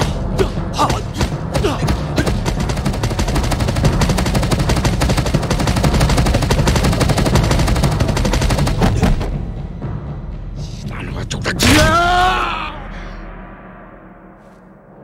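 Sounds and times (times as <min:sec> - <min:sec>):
rapid punch impacts: 0:00.0 - 0:09.5.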